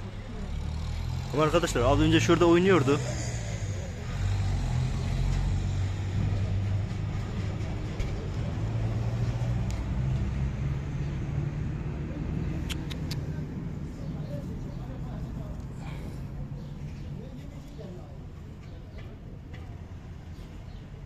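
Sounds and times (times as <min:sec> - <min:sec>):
low rumble of vehicle engines: 0:00.0 - 0:21.0.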